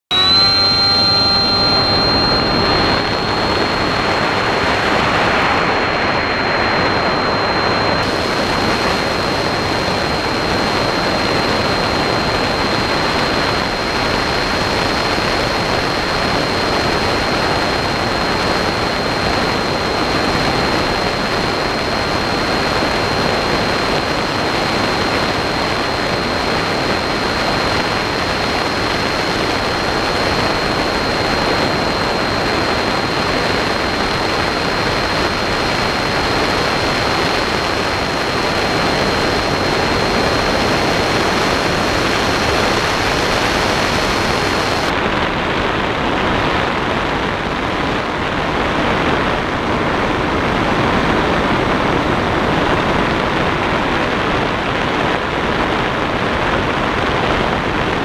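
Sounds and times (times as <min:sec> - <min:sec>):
drone motors whining: 0:00.1 - 0:44.9.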